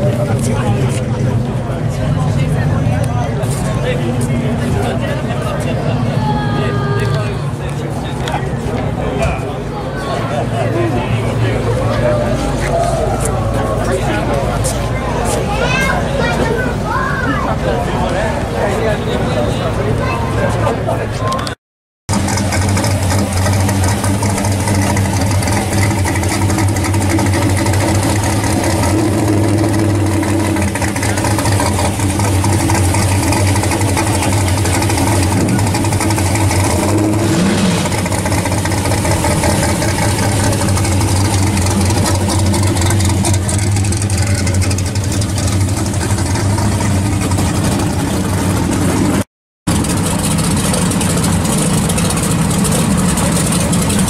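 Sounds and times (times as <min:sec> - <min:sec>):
car engine idling: 0:00.0 - 0:21.5, 0:22.1 - 0:54.0
engine revving: 0:22.1 - 0:54.0.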